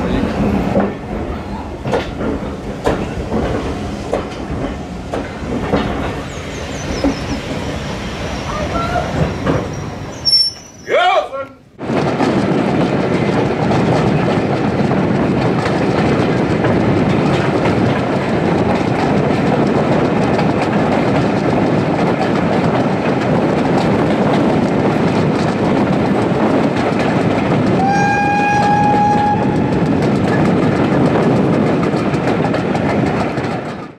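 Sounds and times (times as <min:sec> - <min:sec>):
train wheels clattering on rails: 0:00.0 - 0:10.8, 0:11.8 - 0:33.9
steam locomotive whistle: 0:27.8 - 0:29.6.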